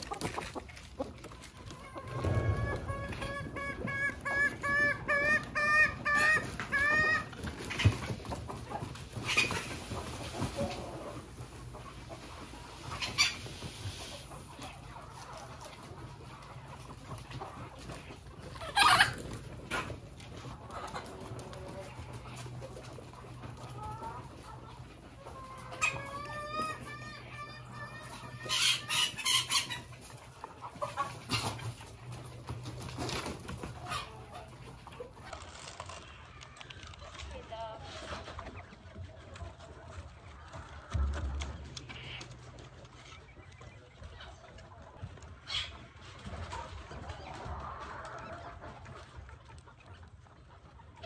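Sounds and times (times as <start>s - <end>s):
chicken clucking: 0.0s - 51.0s
chickens squawking harshly: 1.6s - 14.4s, 18.4s - 20.0s, 23.6s - 31.9s.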